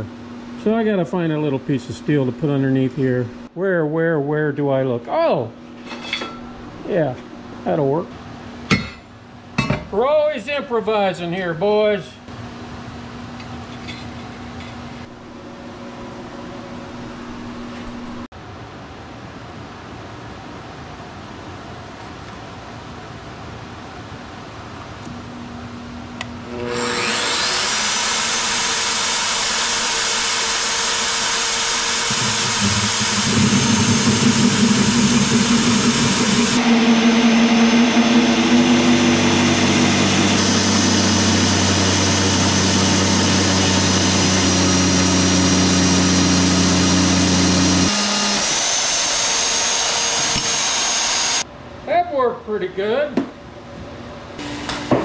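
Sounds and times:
drill press motor whine: 26.4 - 51.4
cutter grinding into steel: 26.5 - 51.4.

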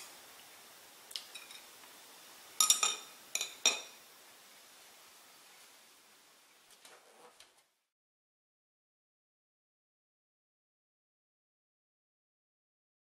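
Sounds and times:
utensil clinking on dish: 2.6 - 4.0.

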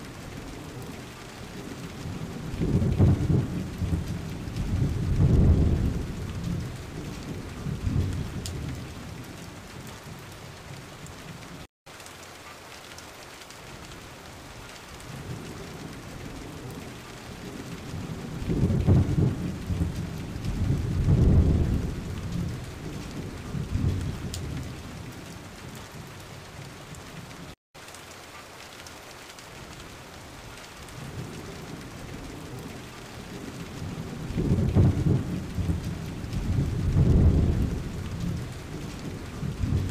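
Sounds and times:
steady rain: 0.0 - 39.9
rolls of thunder: 1.6 - 9.2, 15.2 - 24.8, 31.0 - 39.9.

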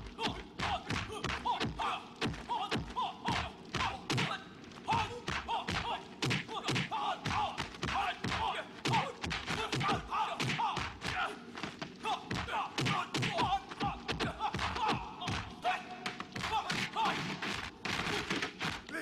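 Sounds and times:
punch and kick impacts: 5.0 - 15.5
fighters grunting: 12.0 - 15.6.

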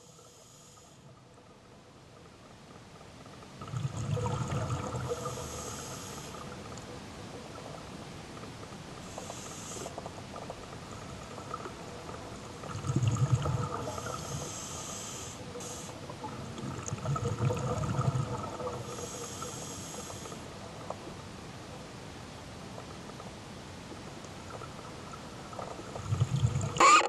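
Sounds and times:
hissing regulator inhalations: 5.1 - 6.4, 9.1 - 10.0, 13.9 - 16.0, 18.8 - 20.4.

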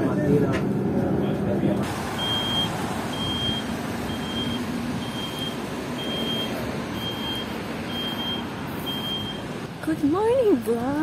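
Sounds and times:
steady background noise: 0.0 - 11.0
electronic warning beeps: 2.2 - 9.5.

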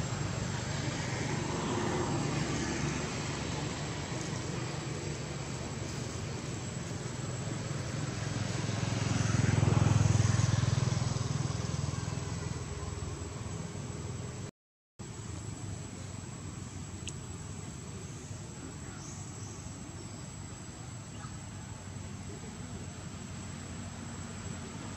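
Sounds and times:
vehicle engine passing: 0.0 - 14.5.

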